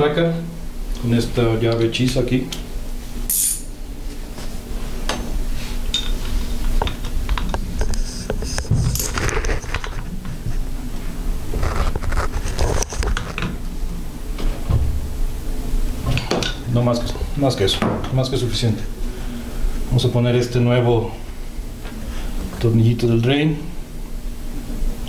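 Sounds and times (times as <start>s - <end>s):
tool clinking against metal: 3.3s - 3.7s.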